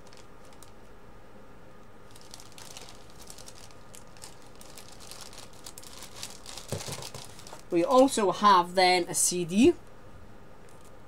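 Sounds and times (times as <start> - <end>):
paper packaging rustling: 0.0 - 0.8, 2.1 - 8.2
low room hum: 0.0 - 11.0.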